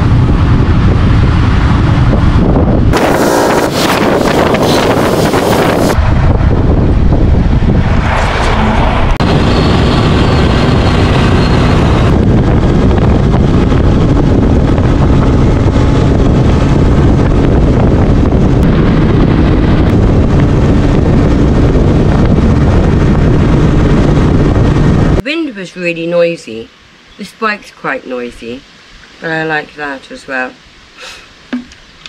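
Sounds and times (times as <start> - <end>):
motorcycle engine running: 0.0 - 7.5, 9.2 - 25.2
wind rushing over microphone: 0.0 - 25.3.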